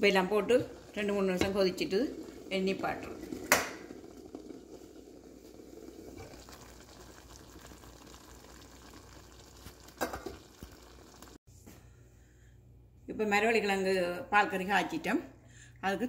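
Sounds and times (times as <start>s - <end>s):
curry bubbling in a pot: 0.0s - 11.4s.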